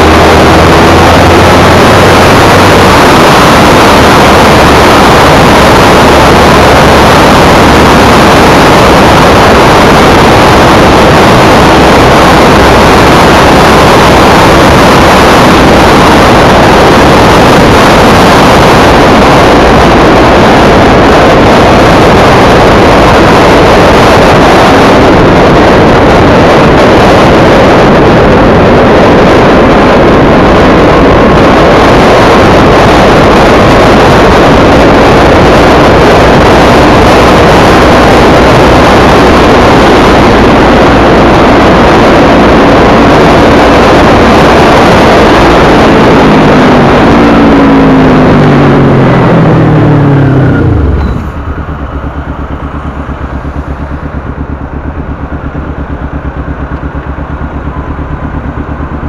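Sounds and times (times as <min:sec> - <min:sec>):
motorcycle engine running: 0:00.0 - 0:59.0
wind rushing over microphone: 0:00.0 - 0:59.0.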